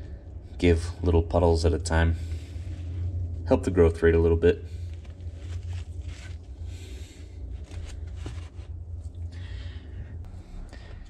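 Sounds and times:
steady low hum: 0:00.0 - 0:11.0
rustling handling noises: 0:04.7 - 0:09.2.

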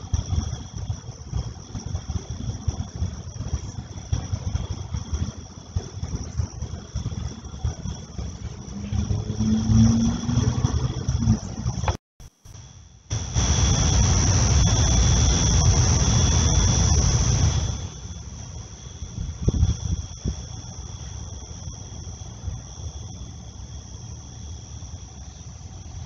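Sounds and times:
wind rumble on microphone: 0:00.0 - 0:12.0, 0:13.1 - 0:23.2
night insects trilling: 0:00.0 - 0:26.0
passing vehicle engine hum: 0:08.2 - 0:12.0.

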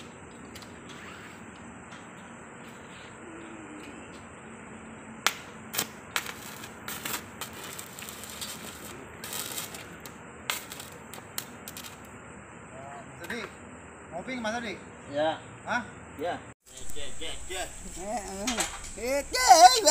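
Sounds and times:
arc welding crackling and popping: 0:00.0 - 0:02.8, 0:05.2 - 0:12.2, 0:16.7 - 0:19.9.

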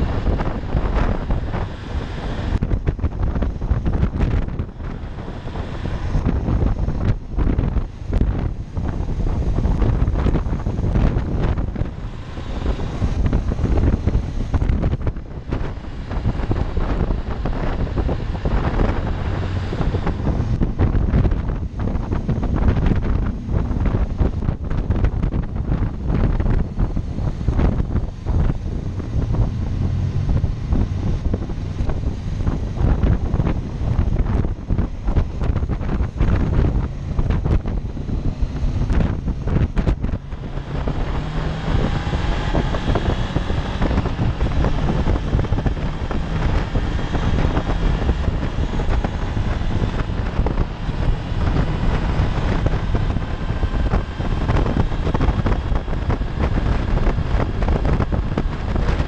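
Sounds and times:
motorcycle engine: 0:00.0 - 0:59.0
wind buffeting microphone: 0:00.0 - 0:59.0.

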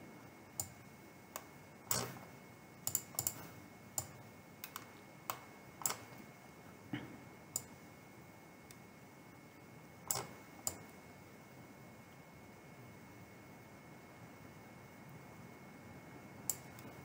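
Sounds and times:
computer mouse clicks: 0:00.6 - 0:00.8, 0:01.4 - 0:06.2, 0:10.1 - 0:11.0, 0:16.5 - 0:17.0.

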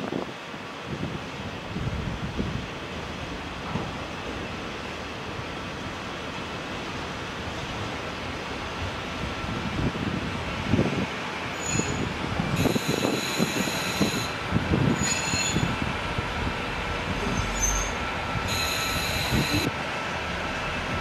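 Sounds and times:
high-pitched wheel squeals: 0:11.6 - 0:12.0, 0:12.6 - 0:15.7, 0:17.2 - 0:19.7.

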